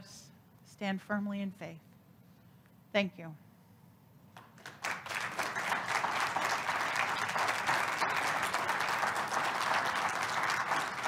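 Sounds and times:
crowd applauding: 4.4s - 11.0s.

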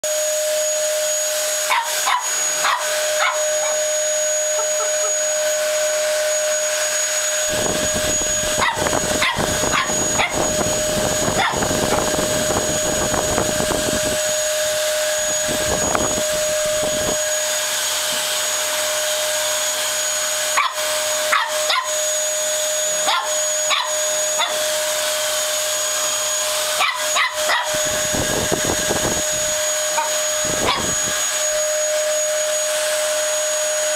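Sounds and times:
vacuum cleaner whine: 0.0s - 33.9s
puppy barking and yipping: 1.6s - 5.3s, 8.5s - 10.5s, 11.3s - 11.7s, 20.6s - 22.0s, 23.0s - 24.7s, 26.7s - 27.9s, 29.9s - 31.0s.

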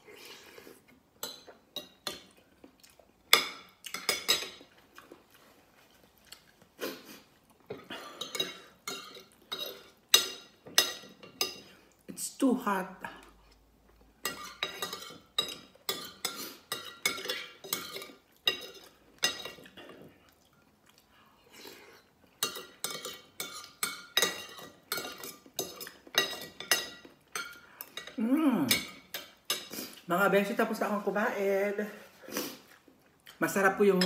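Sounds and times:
chewing: 0.3s - 8.4s, 16.3s - 23.7s
cutlery clinking on plate: 14.3s - 19.8s, 22.4s - 29.7s.

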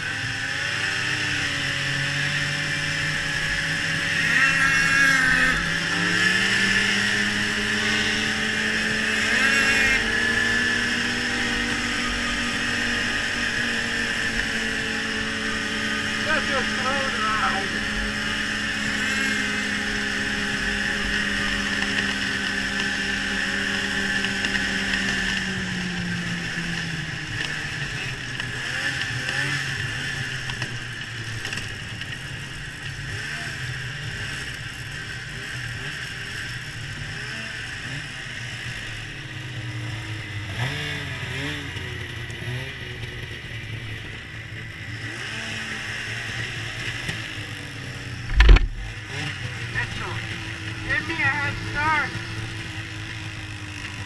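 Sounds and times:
snowmobile throttle blips: 0.0s - 39.0s, 39.7s - 54.0s
snowmobile engine running: 0.0s - 54.0s.

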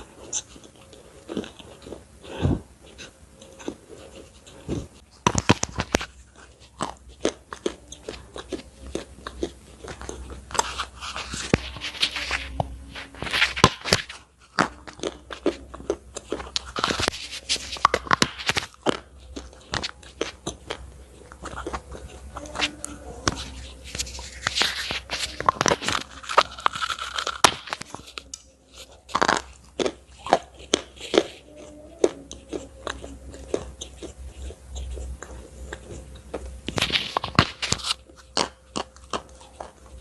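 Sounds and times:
crunchy biting and chewing: 0.0s - 40.0s.

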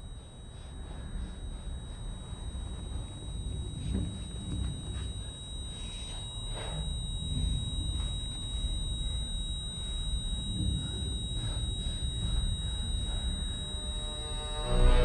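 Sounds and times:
high-pitched electrical tone: 0.0s - 15.0s.

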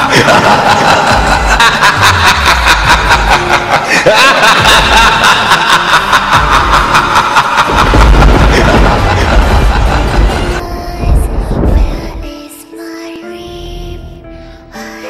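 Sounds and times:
low intermittent rumble: 7.8s - 12.4s.

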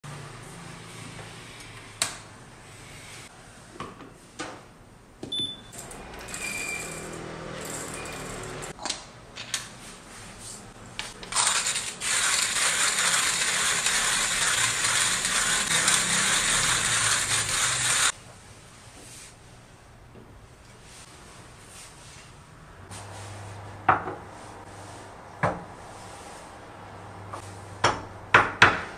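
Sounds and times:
coffee grinder crunching beans: 11.2s - 18.2s.

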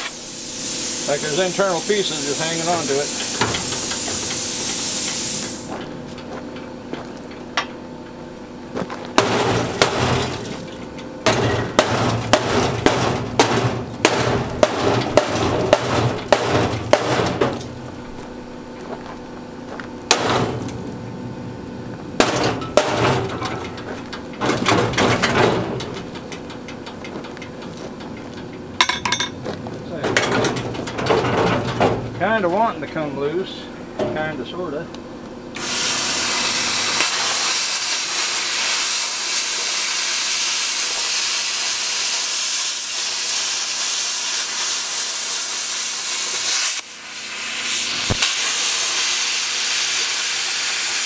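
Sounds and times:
plasma cutter air hiss: 0.0s - 5.8s, 35.6s - 51.0s
sheet metal clanking: 9.2s - 17.9s, 22.2s - 32.5s.

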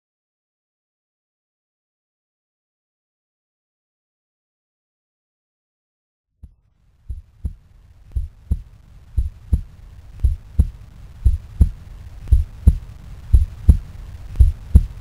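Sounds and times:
heartbeat thumps: 6.4s - 15.0s
low rumble: 6.6s - 15.0s.

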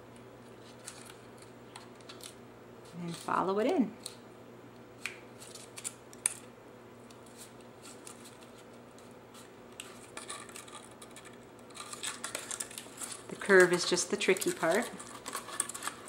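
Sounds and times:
paper rustling and crinkling: 0.4s - 3.4s, 7.2s - 16.0s.

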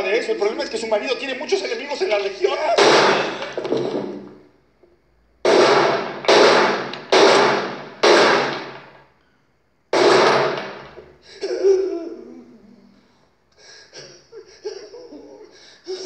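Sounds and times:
revolver gunshot: 2.8s - 4.1s, 5.4s - 9.0s, 9.9s - 11.0s
person sobbing and wailing: 11.3s - 13.0s, 13.7s - 16.0s.

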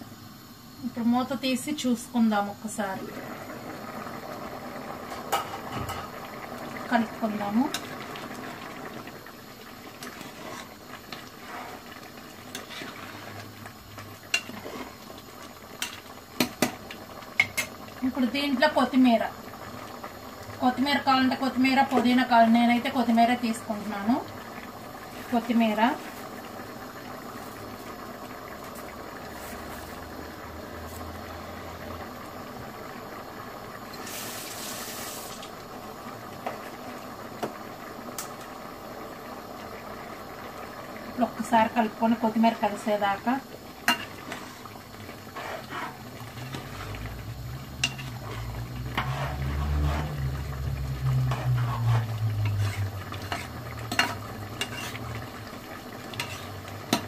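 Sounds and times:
gas stove hiss: 0.0s - 57.0s
ladle scraping a pot: 10.0s - 11.8s, 45.3s - 46.9s, 47.8s - 50.2s, 51.2s - 55.2s, 56.1s - 57.0s.

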